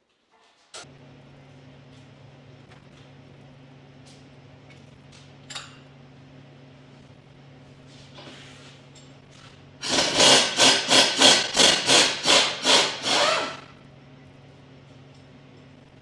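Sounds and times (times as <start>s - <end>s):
hand tool rasping strokes: 9.8s - 13.6s.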